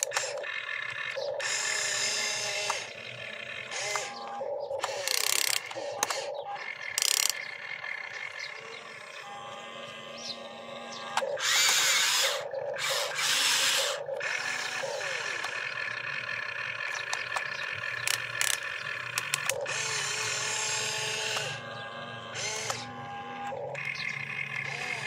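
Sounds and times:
sharp clicks: 0.0 - 1.6, 2.4 - 3.0, 3.6 - 7.6, 11.1 - 15.7, 16.9 - 19.8, 21.2 - 21.6, 22.4 - 24.1
toy motors and gears whirring: 0.0 - 25.0.

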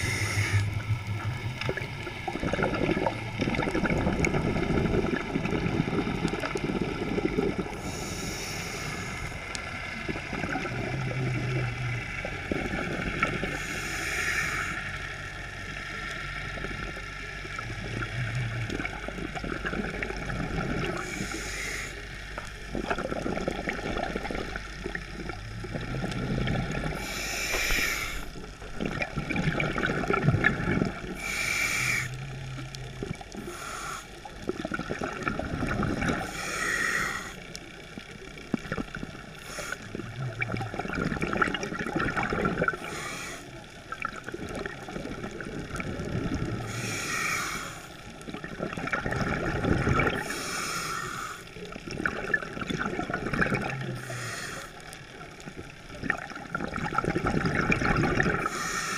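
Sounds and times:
hissing regulator breaths: 0.0 - 0.8, 7.7 - 9.6, 13.5 - 15.1, 20.9 - 22.3, 26.9 - 28.4, 31.2 - 32.4, 33.4 - 34.3, 36.1 - 37.5, 39.3 - 40.0, 42.7 - 43.7, 46.6 - 48.1, 50.2 - 51.7, 53.9 - 55.0, 58.4 - 58.9.

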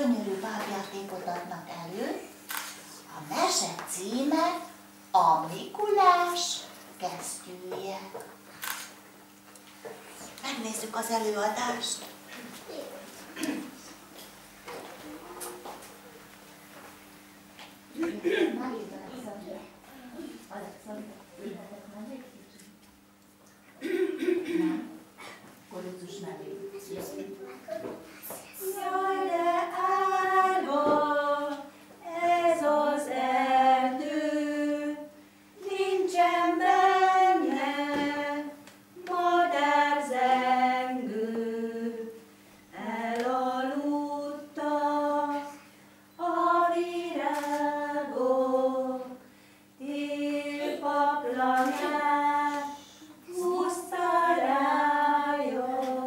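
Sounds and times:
young children singing: 27.0 - 42.2, 46.2 - 49.2, 49.8 - 56.0.

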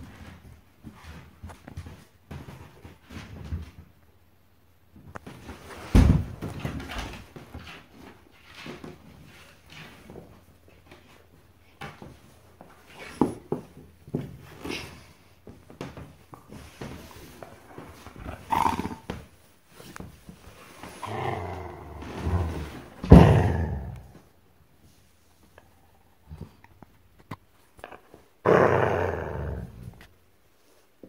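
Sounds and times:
dog growling in play: 17.4 - 19.3, 20.8 - 24.2, 27.8 - 30.1.

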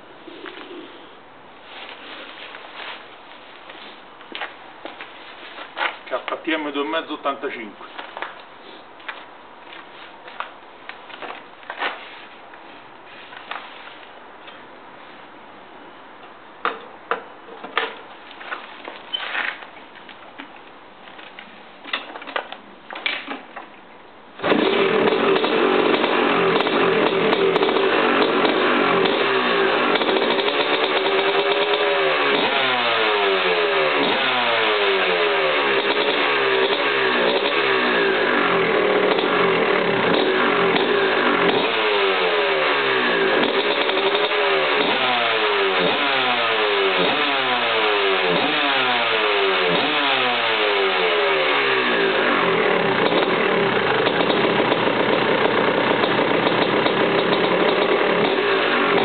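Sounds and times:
motocross engine revving: 24.4 - 59.0.

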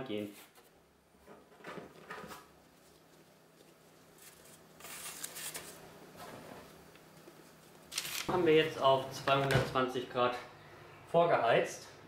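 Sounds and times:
faint steady hum: 0.0 - 12.0
parchment paper rustling: 2.2 - 8.4.

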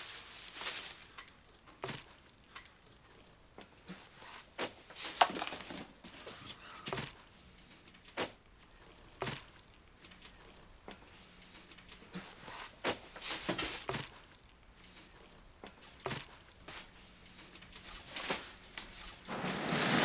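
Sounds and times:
plastic bags rustling: 0.0 - 2.9, 3.8 - 14.5, 15.1 - 20.0
cardboard boxes knocking and scraping: 4.6 - 6.2.

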